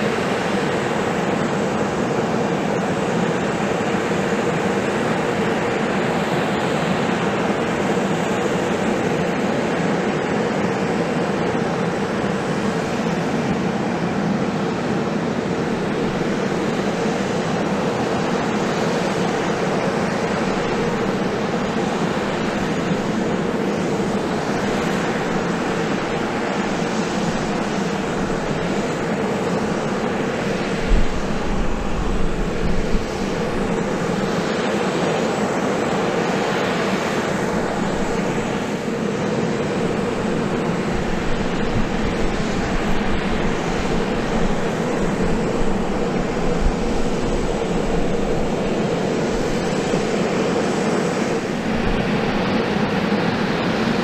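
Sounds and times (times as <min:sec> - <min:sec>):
aircraft turbines whining: 0:00.0 - 0:54.0.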